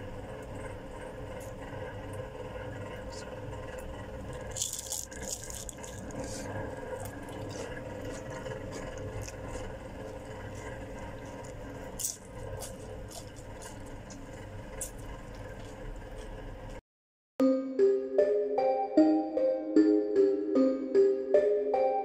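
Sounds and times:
low room hum: 0:00.0 - 0:16.8.

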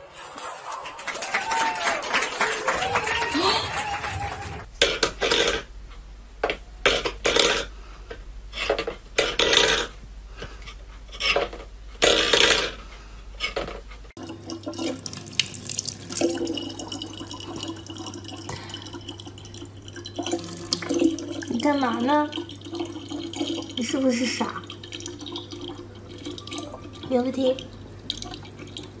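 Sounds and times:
water running into plastic bottle: 0:14.2 - 0:29.0.

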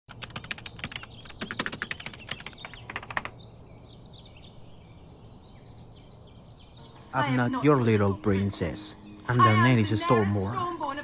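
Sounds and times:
rapid typing clicks: 0:00.1 - 0:03.4
faint birds chirping: 0:00.1 - 0:11.0.

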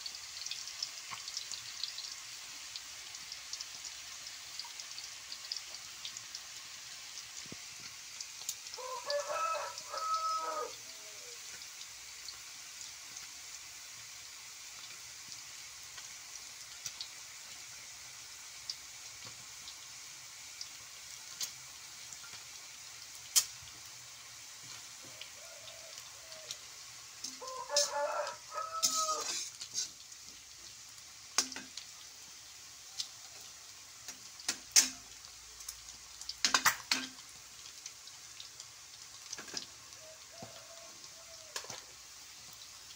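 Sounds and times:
food sizzling in a wok: 0:00.0 - 0:42.9
rooster crowing: 0:08.8 - 0:11.4, 0:25.0 - 0:29.4, 0:40.0 - 0:41.8
metal spatula scraping a pan: 0:27.2 - 0:28.0, 0:28.6 - 0:30.1.

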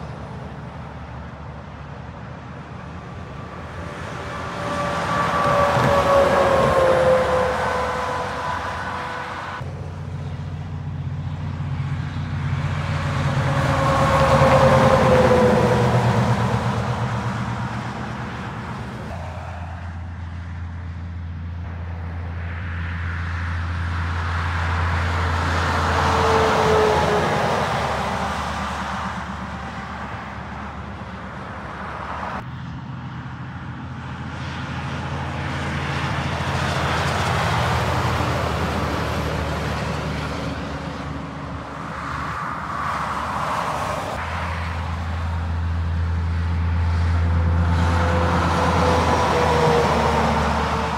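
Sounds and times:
heavy trucks passing: 0:00.0 - 0:50.9
low engine hum: 0:00.0 - 0:50.9.

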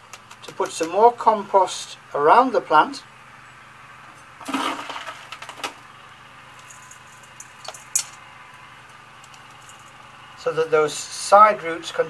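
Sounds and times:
light clicks of stones: 0:00.1 - 0:01.0, 0:06.6 - 0:08.2, 0:08.8 - 0:10.0
spoon scraping gritty soil: 0:04.4 - 0:05.3.

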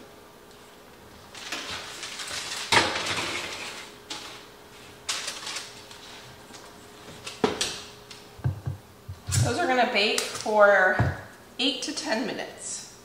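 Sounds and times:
parchment paper rustling: 0:01.2 - 0:07.5.

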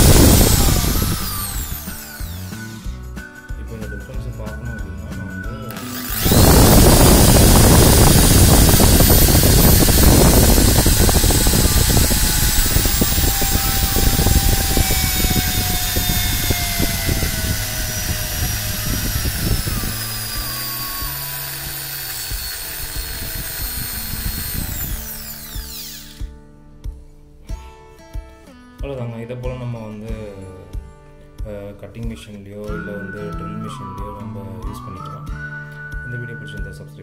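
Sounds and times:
electric drill motor whine: 0:00.0 - 0:03.0, 0:05.7 - 0:26.3.

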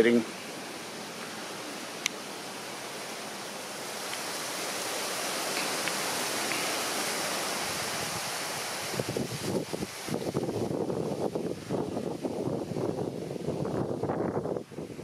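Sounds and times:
creek water flowing: 0:00.0 - 0:15.0.

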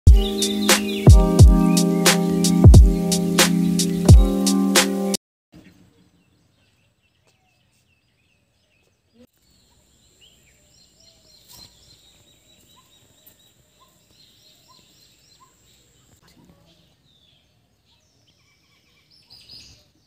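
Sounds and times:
bird repeating upward note: 0:00.1 - 0:04.1
birds chirping: 0:00.1 - 0:20.0.

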